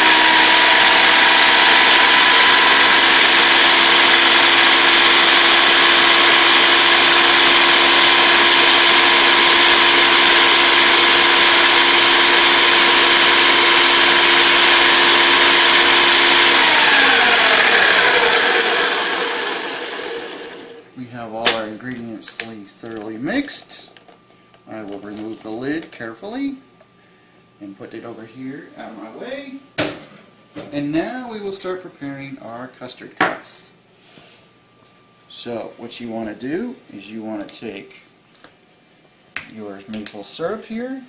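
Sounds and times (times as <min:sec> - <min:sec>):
blender motor whining: 0:00.0 - 0:20.9.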